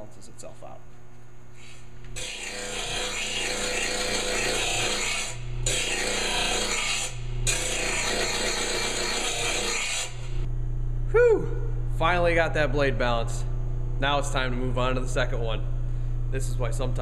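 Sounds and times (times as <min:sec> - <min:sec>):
grinder motor hum: 0:01.5 - 0:10.5
grinder grinding metal blade: 0:01.6 - 0:10.5.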